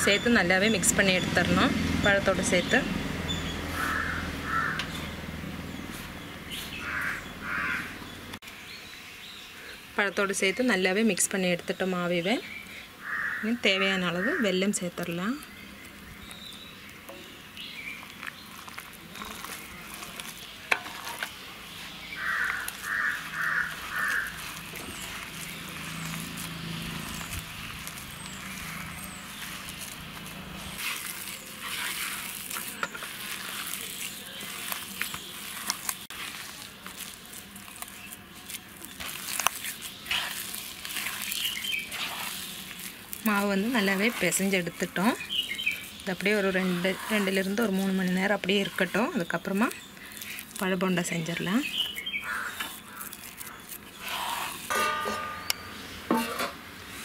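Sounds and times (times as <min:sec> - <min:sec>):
bird calling: 0:02.4 - 0:08.4, 0:12.5 - 0:14.7, 0:19.1 - 0:36.3, 0:37.6 - 0:50.4, 0:51.3 - 0:56.3
hand kneading sticky dough: 0:14.2 - 0:54.7.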